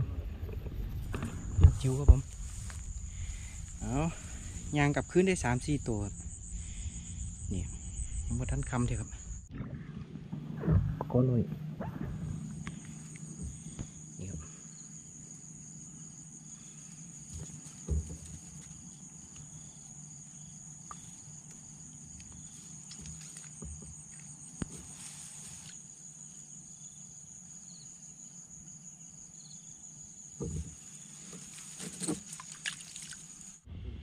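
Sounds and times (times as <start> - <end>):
insects chirping: 0.0 - 9.6, 11.1 - 33.7
short knocks and thumps: 17.3 - 18.6, 23.0 - 24.0, 30.4 - 32.3.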